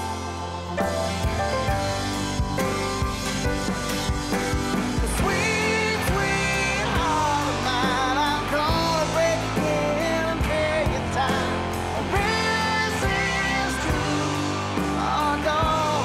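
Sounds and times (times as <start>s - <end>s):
rock song with guitar: 0.0s - 16.0s.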